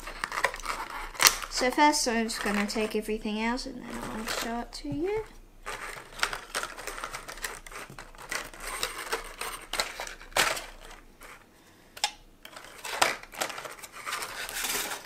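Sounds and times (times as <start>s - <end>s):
plastic packaging crinkling: 0.0s - 11.5s, 12.4s - 15.0s
sharp plastic snaps: 0.2s - 1.7s.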